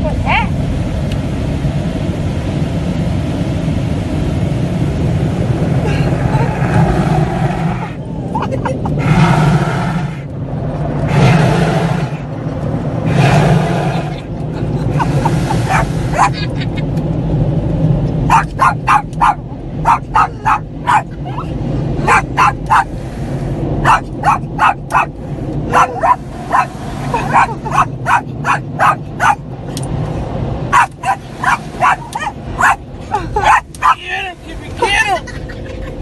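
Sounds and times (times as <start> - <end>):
steady low rumble: 0.0 - 36.0
small dog barking: 15.7 - 16.4, 18.3 - 21.1, 22.0 - 22.9, 23.8 - 25.1, 25.7 - 26.7, 27.3 - 29.4, 30.7 - 32.8, 33.4 - 34.0.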